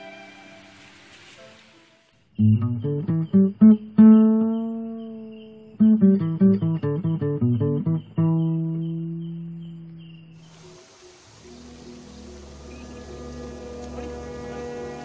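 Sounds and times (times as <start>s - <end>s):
acoustic guitar plucked notes: 2.4s - 10.0s.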